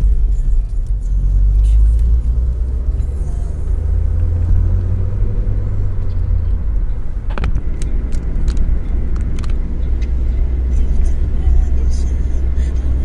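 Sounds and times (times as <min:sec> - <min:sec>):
car engine and road rumble: 0:00.0 - 0:13.0
sharp clicks or rattles: 0:07.3 - 0:09.6.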